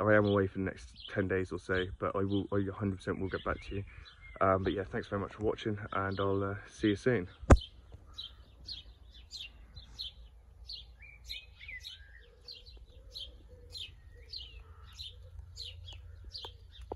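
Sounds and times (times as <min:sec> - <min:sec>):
small birds chirping: 0:00.0 - 0:16.9
whistled bird notes: 0:03.2 - 0:04.8, 0:07.3 - 0:16.9.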